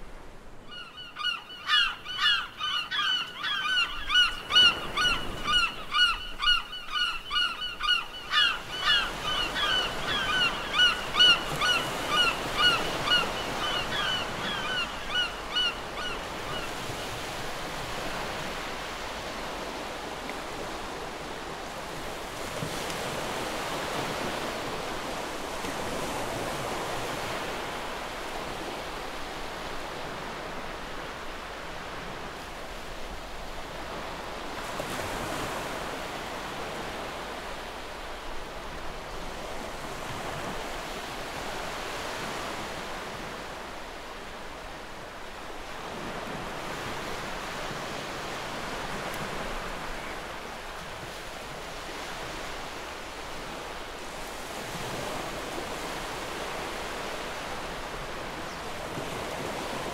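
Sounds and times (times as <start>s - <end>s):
ocean surf: 0.0s - 59.9s
birds honking: 0.7s - 16.8s.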